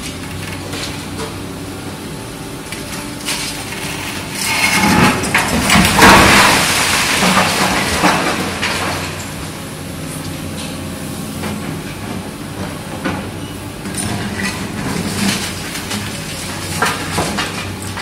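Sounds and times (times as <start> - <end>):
excavator diesel engine running: 0.0 - 18.0.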